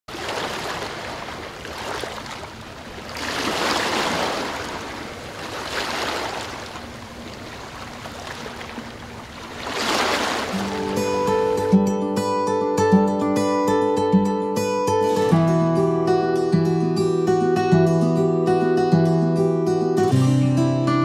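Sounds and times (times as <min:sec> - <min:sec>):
small waves washing on sand: 0:00.1 - 0:11.6.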